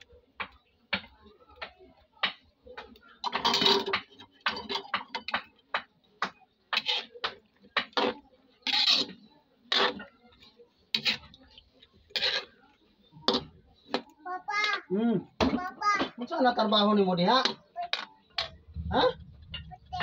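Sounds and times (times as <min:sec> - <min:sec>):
metal spatula scraping a wok: 0:06.7 - 0:13.5.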